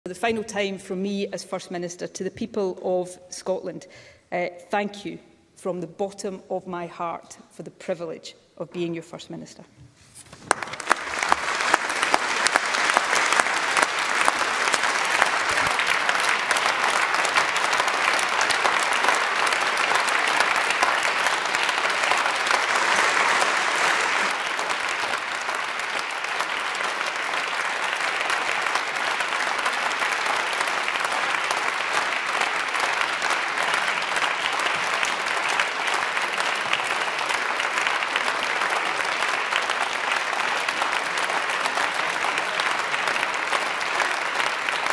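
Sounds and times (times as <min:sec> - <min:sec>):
crowd applauding: 0:10.3 - 0:44.9.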